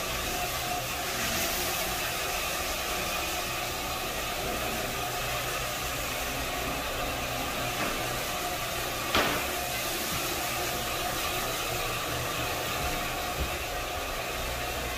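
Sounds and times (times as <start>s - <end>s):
floor machine motor hum: 0.0s - 14.9s.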